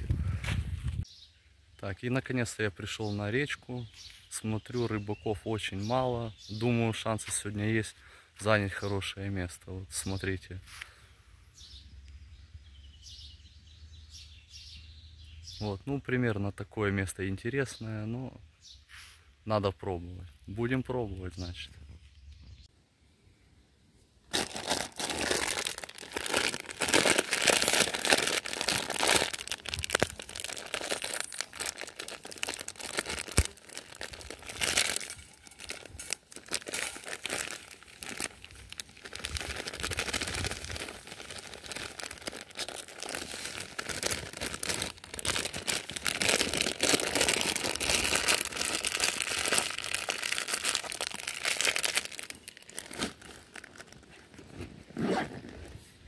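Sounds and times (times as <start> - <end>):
plastic packets crinkling: 24.3 - 54.5.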